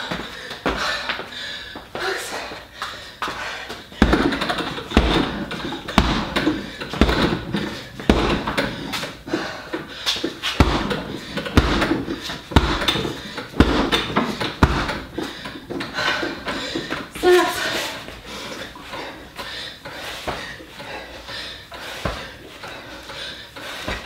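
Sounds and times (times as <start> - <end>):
punches thumping heavy bag: 4.0 - 8.8, 10.6 - 15.2.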